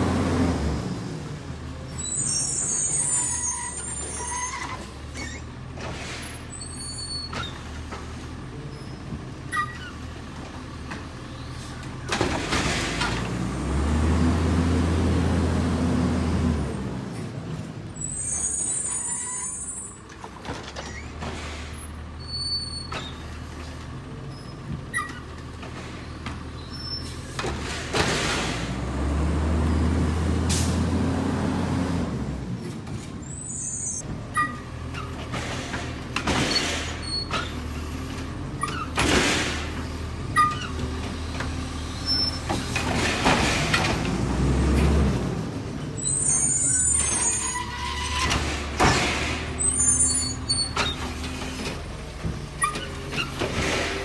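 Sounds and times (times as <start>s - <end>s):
garbage truck engine revving: 0.0s - 2.2s, 12.2s - 17.1s, 26.8s - 32.9s, 35.3s - 54.0s.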